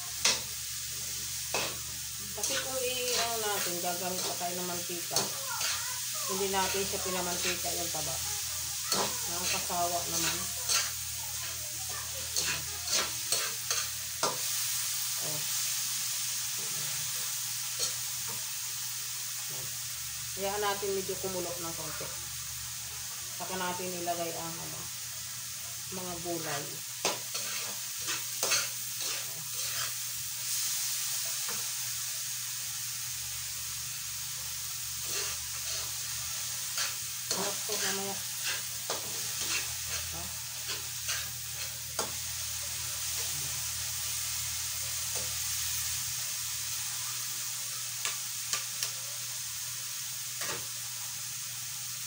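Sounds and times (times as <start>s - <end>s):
meat sizzling in a wok: 0.0s - 52.0s
metal ladle scraping a pan: 8.9s - 11.0s, 12.4s - 14.4s, 27.0s - 30.0s, 35.0s - 42.2s.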